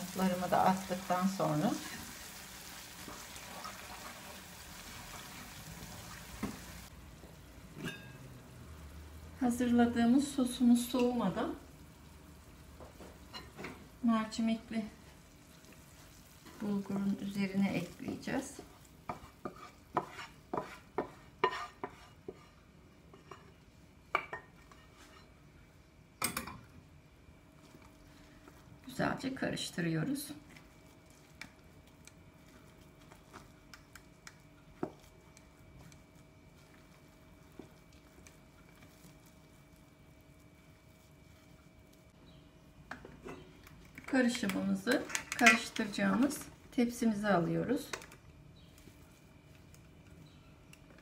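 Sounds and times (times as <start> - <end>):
sauce sizzling in a frying pan: 0.0 - 9.4, 10.3 - 20.3
wooden spoon stirring: 15.4 - 23.6, 30.4 - 42.2
wooden spoon scraping a pan: 15.7 - 23.6, 24.4 - 25.4.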